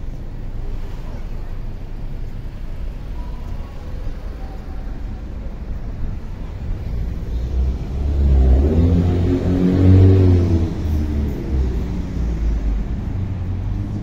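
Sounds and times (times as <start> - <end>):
street traffic rumble: 0.0 - 14.0
car driving past: 5.3 - 14.0.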